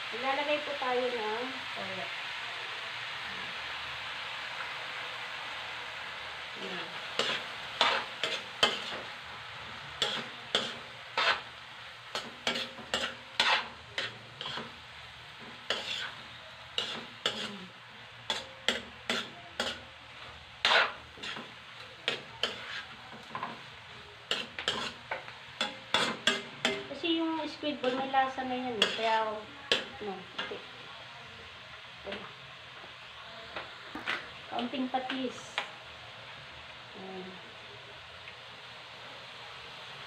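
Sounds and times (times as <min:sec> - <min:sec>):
frying sizzle: 0:00.0 - 0:40.0
metal spatula scraping a wok: 0:07.0 - 0:09.1, 0:10.0 - 0:14.8, 0:15.4 - 0:30.7.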